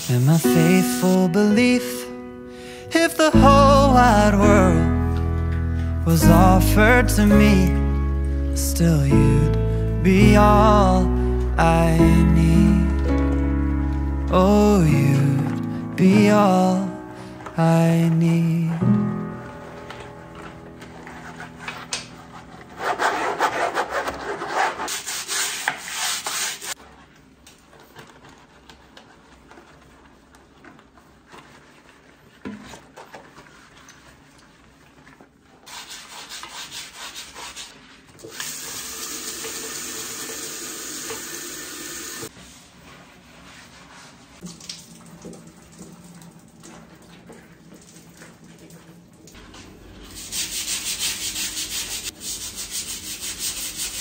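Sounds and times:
scrubbing a ceramic washbasin: 0.0s - 1.4s, 19.4s - 38.2s, 42.2s - 54.0s.

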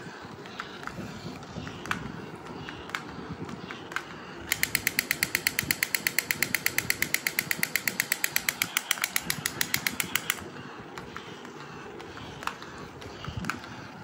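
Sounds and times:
low whirr of toy motor: 0.0s - 14.0s
toy machine-gun sound effect: 4.4s - 10.4s.

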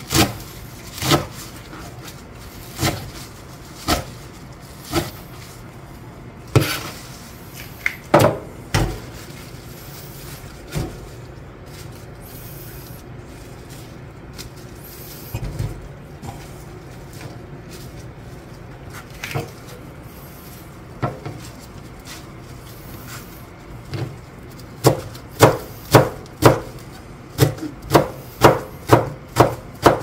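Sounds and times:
knife chopping on plastic board: 1.0s - 1.3s, 24.8s - 26.7s, 27.4s - 30.0s.

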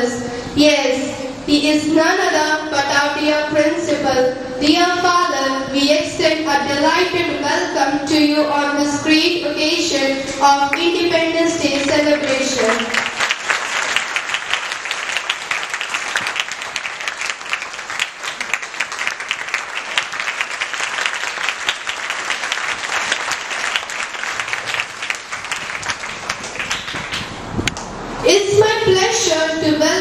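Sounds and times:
children clapping: 11.6s - 27.9s.

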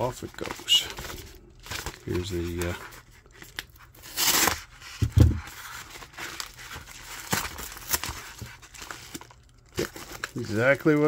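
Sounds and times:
paper crinkling: 0.0s - 11.0s
paper tearing rip: 4.0s - 4.7s.

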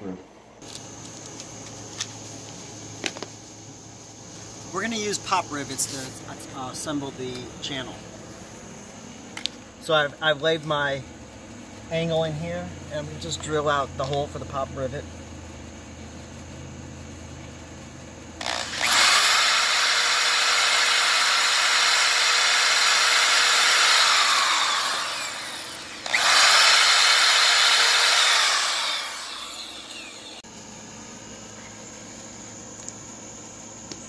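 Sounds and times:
electric drill boring: 18.4s - 30.4s.

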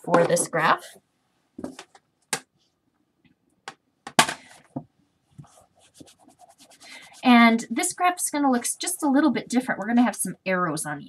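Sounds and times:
objects knocking and clicking: 1.6s - 2.4s.

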